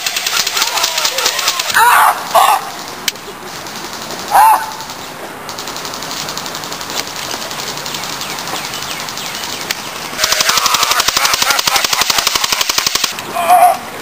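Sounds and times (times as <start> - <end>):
airsoft guns firing full-auto: 0.0 - 3.0, 10.2 - 13.2.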